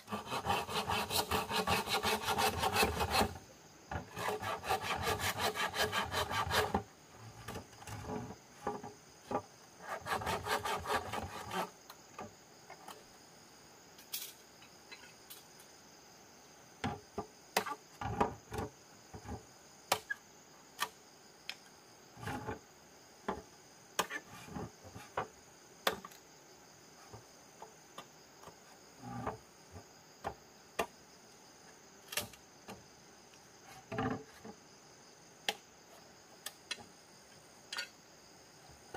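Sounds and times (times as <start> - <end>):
hand saw cutting bamboo: 0.0 - 3.4, 4.0 - 6.8, 9.8 - 11.7
insect chirring: 0.0 - 38.9.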